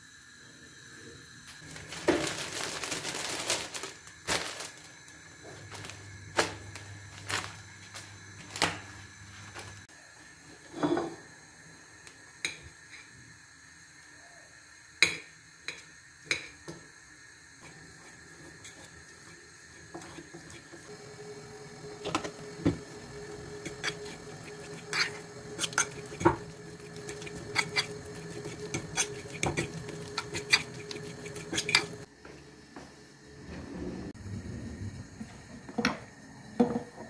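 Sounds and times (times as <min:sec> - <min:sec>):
fork mashing potato on plate: 0:23.6 - 0:32.0.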